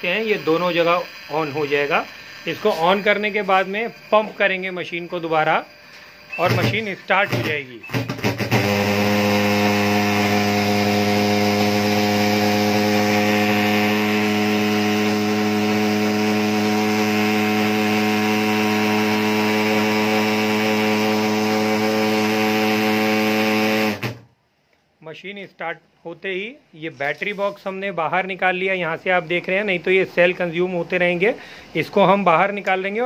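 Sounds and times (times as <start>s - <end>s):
pulse-jet engine droning: 0.0s - 23.6s.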